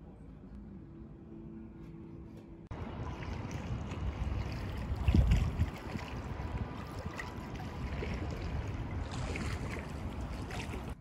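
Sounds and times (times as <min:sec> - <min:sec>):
pool water sloshing and trickling: 0:02.7 - 0:11.0
wind buffeting microphone: 0:02.7 - 0:11.0.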